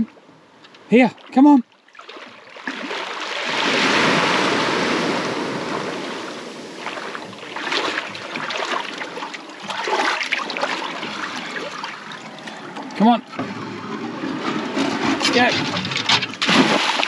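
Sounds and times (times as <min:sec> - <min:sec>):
water sloshing from wading: 0:00.0 - 0:17.0.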